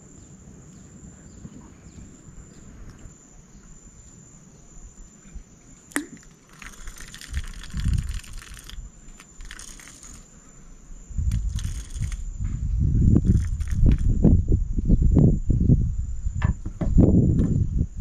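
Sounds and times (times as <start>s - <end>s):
rustling hiss: 0.0s - 16.4s
insects trilling: 0.0s - 18.0s
low thuds: 12.3s - 17.8s.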